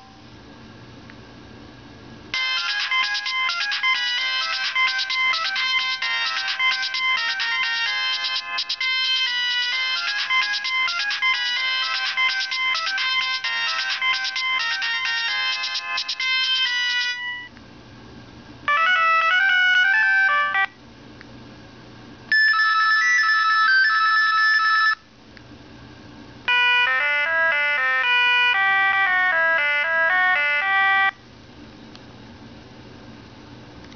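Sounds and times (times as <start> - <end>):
electronic ringtone melodies: 2.4 - 17.5, 18.7 - 20.8, 22.3 - 25.0, 26.5 - 31.2.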